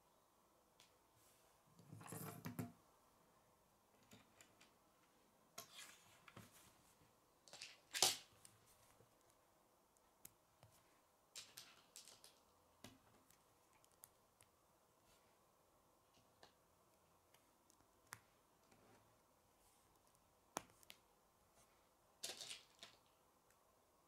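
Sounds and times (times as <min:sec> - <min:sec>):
plastic pieces clicking together: 0:11.4 - 0:12.4.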